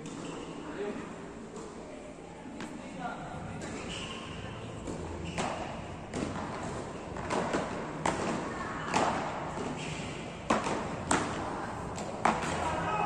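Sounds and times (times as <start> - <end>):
paddles hitting ball: 4.8 - 13.0.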